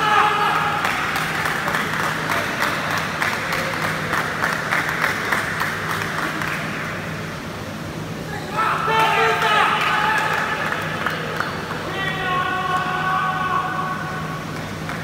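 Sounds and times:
spectators applauding: 0.0 - 7.0, 9.0 - 13.0, 14.5 - 15.0.

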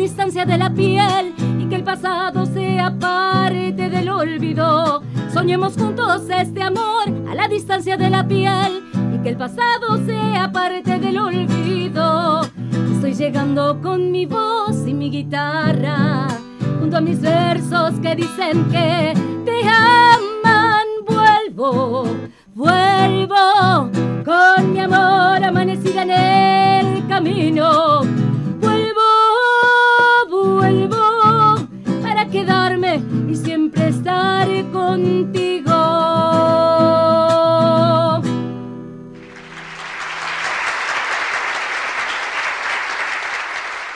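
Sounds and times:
strummed acoustic guitar: 0.0 - 29.0, 30.5 - 39.7
woman singing a ballad: 0.0 - 38.4
applause: 39.2 - 43.9.

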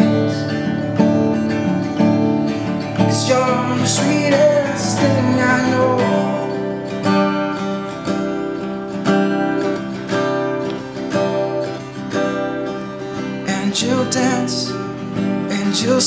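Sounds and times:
acoustic guitar strumming chords: 0.0 - 16.0
person singing wordless vocal: 3.0 - 6.8, 13.4 - 14.9, 15.5 - 16.0.

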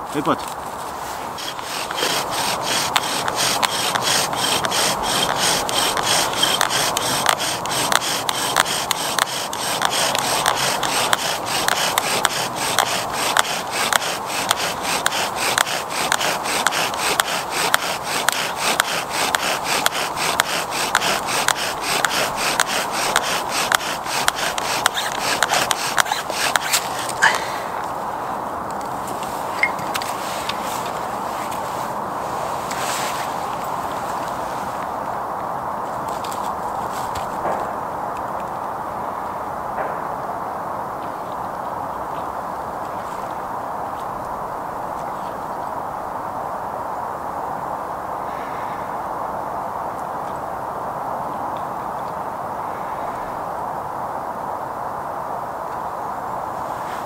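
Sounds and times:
bow drill spindle grinding wood: 1.2 - 27.5.

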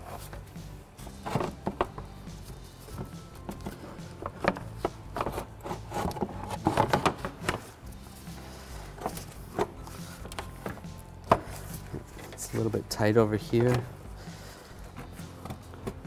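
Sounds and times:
background music: 0.0 - 16.0
plastic shroud knocking and scraping: 1.1 - 2.2, 2.9 - 7.8.

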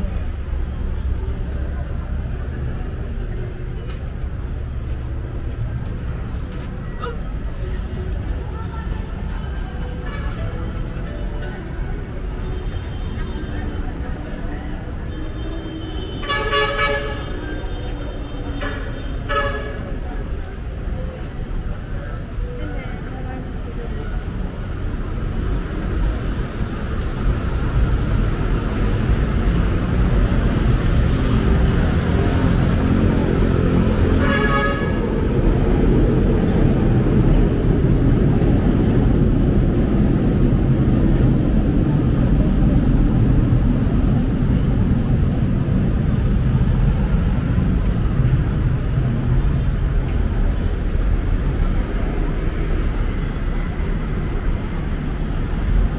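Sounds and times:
vehicle engines running: 19.8 - 55.9.

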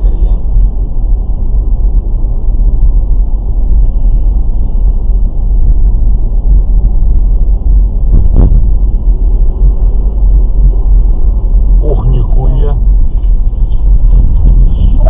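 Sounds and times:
car road and engine rumble: 0.0 - 15.0.

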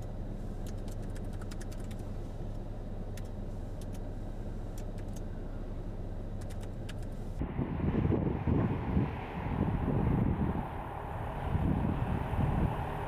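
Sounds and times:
vehicle engine idling: 0.0 - 13.0
wind buffeting microphone: 7.4 - 13.0.

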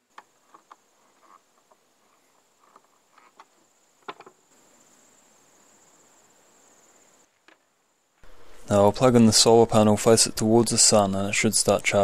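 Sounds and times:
high-pitched insect trill: 4.5 - 7.3.

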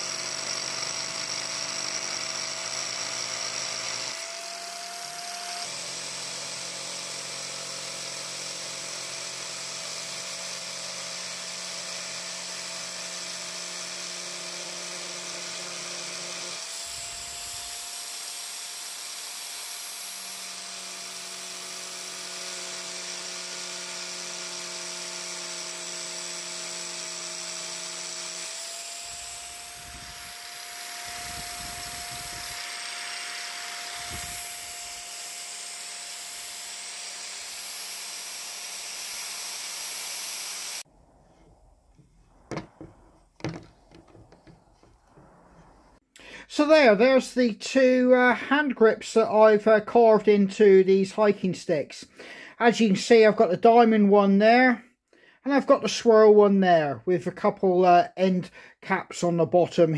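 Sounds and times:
angle grinder grinding wood: 0.0 - 46.7.

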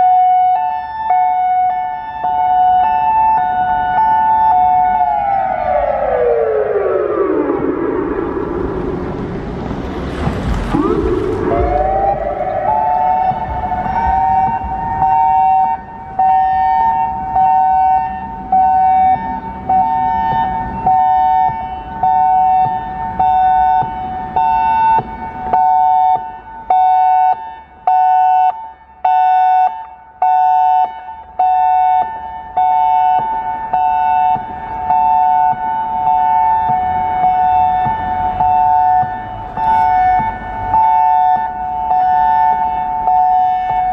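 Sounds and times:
electronic siren hi-lo tone: 0.0 - 9.6, 10.7 - 28.5.

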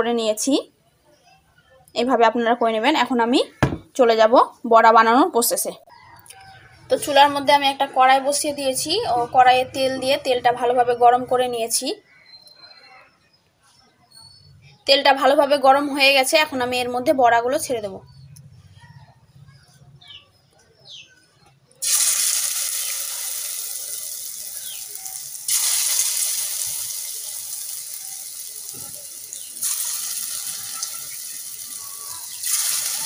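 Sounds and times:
batter sizzling in hot oil: 21.8 - 33.0.

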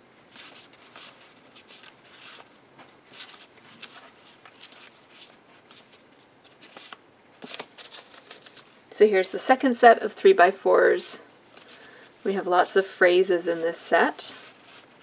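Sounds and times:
cards rustling: 0.3 - 2.5, 3.1 - 8.8.

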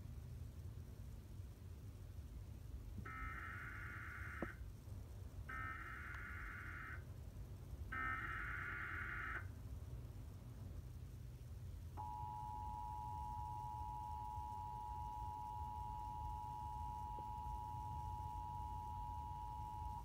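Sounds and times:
two-tone attention signal: 12.0 - 20.0.

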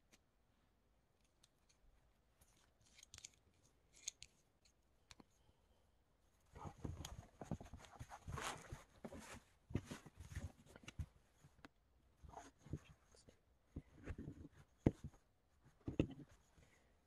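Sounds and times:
cloth rustling and tools knocking: 6.5 - 11.6, 13.7 - 16.8.

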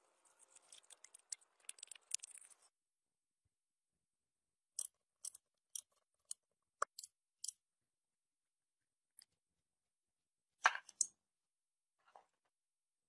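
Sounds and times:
small scrapes: 0.0 - 2.8.

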